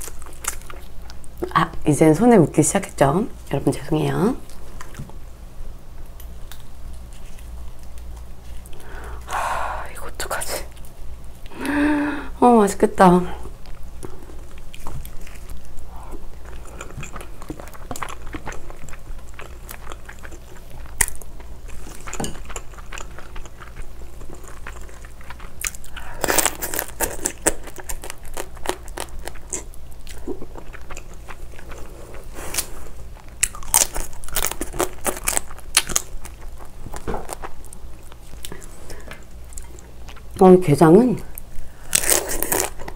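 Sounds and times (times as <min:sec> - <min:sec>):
chewing: 0:13.6 - 0:40.4
crunching crab shell: 0:16.4 - 0:31.8, 0:32.5 - 0:38.6.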